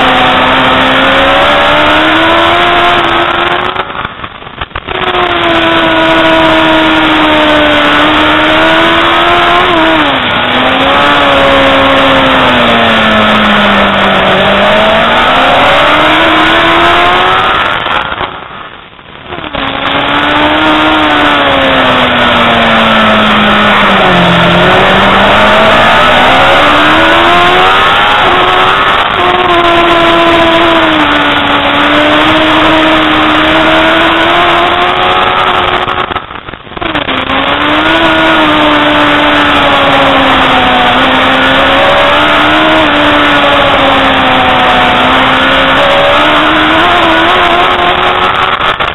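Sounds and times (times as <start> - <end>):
motorbike engine at speed: 0.0 - 48.9
rush of noise: 0.0 - 48.9.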